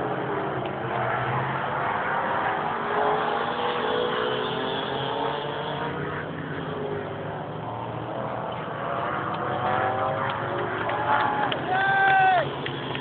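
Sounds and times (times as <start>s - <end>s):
small motorcycle engines revving: 0.0s - 13.0s.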